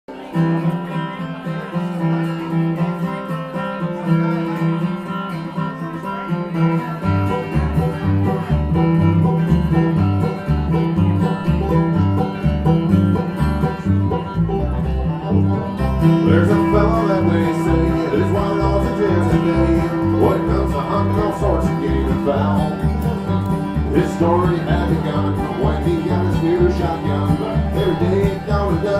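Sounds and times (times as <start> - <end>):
acoustic guitar: 0.1 - 28.9
banjo: 0.1 - 28.9
upright bass walking line: 7.3 - 28.9.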